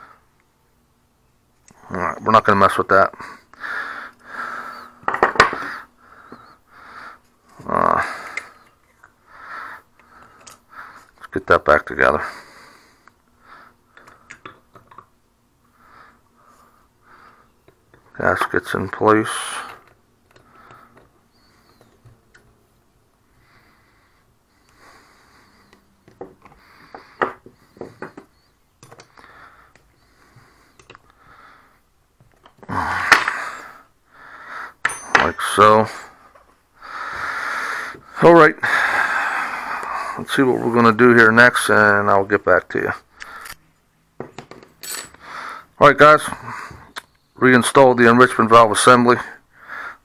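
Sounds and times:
heavy breathing: 3.1 - 11.2, 12.2 - 14.4, 15.6 - 17.6, 19.2 - 21.9, 23.2 - 31.9, 32.6 - 34.8, 35.8 - 41.1, 43.1 - 43.6, 44.9 - 47.0, 49.3 - 50.0
small parts clicking: 30.8 - 31.2
metal tools clinking on workbench: 34.8 - 35.6, 44.3 - 45.2
person breathing through nose: 36.8 - 40.3.

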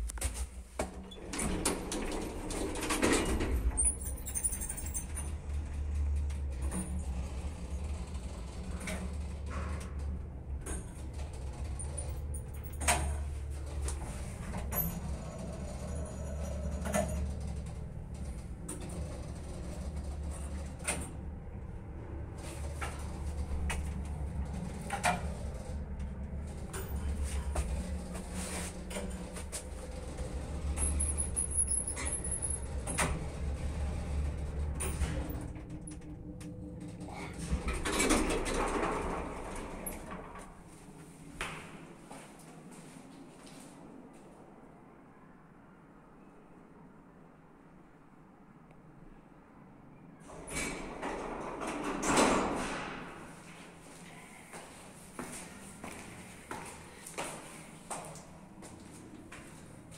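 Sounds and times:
lift motor hum: 0.0 - 40.9
lift doors shutting: 0.2 - 40.8, 50.2 - 53.4.

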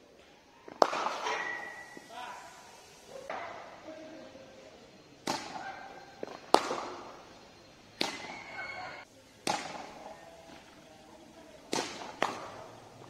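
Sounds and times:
cricket ball cracking on bat: 0.7 - 1.7, 5.2 - 7.1, 8.0 - 8.4, 9.4 - 10.7, 11.7 - 12.8.

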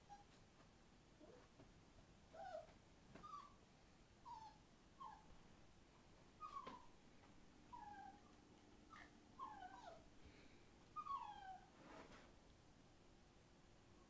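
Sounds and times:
puppies whining: 2.3 - 3.6, 6.4 - 6.9, 7.7 - 10.1, 11.0 - 11.7.

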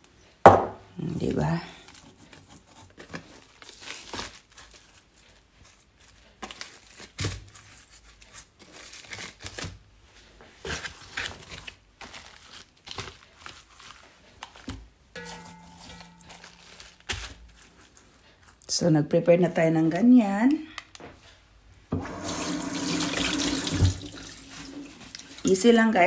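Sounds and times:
paper crinkling and rustling: 1.8 - 18.6, 23.4 - 25.8.

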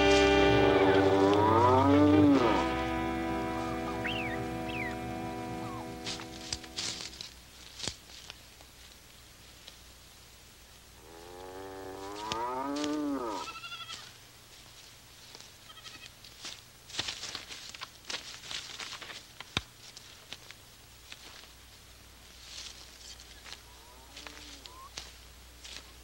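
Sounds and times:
calf bawling: 0.0 - 6.8
knocks and scuffling: 0.0 - 9.8.

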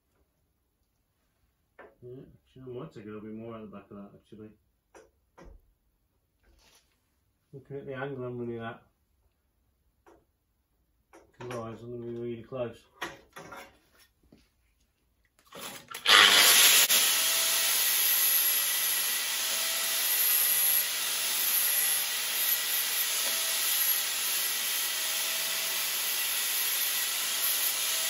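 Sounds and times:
power grinder grinding steel: 15.6 - 28.0.

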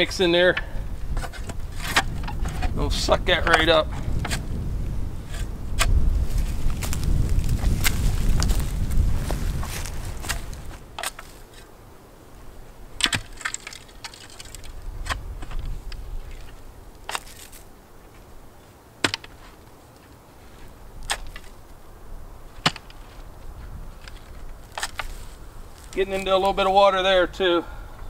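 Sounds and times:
spade striking soil: 3.4 - 4.4, 5.2 - 7.0, 9.6 - 11.7, 13.0 - 15.7, 16.4 - 17.6, 19.0 - 19.6, 21.0 - 21.6, 22.5 - 23.1, 24.0 - 25.2.

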